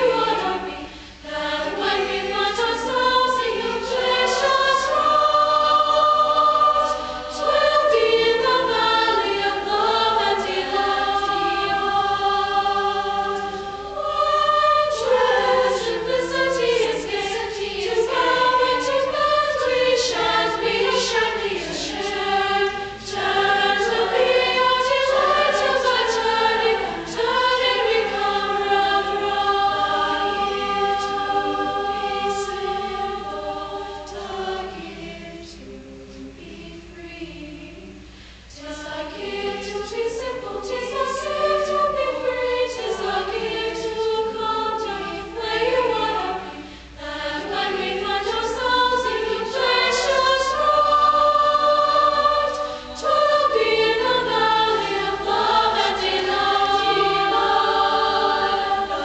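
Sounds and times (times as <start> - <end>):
choir singing sustained chords: 0.0 - 59.0.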